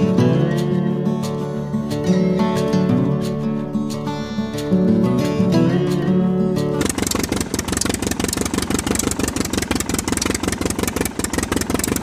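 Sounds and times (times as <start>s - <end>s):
engine idling chugging: 6.8s - 12.0s.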